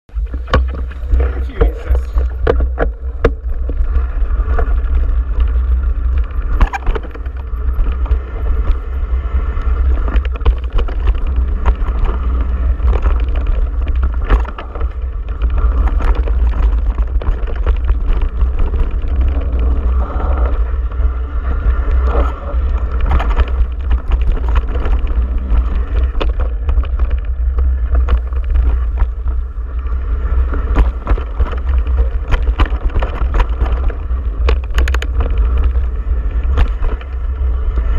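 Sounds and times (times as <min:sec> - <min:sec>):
wind rumble on microphone: 0:00.0 - 0:37.9
bike rattles and knocks: 0:00.1 - 0:37.9
tyre noise on dirt: 0:00.1 - 0:37.9.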